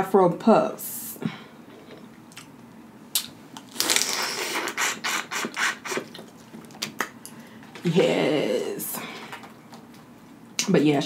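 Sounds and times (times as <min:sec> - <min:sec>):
wet sucking and smacking: 0:01.8 - 0:07.4.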